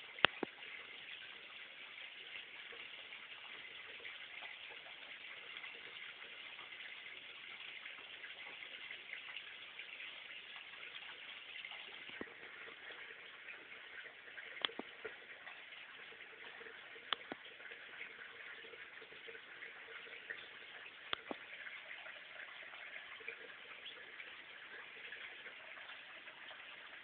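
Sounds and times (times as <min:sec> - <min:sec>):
soft clicks: 0:14.6 - 0:14.9.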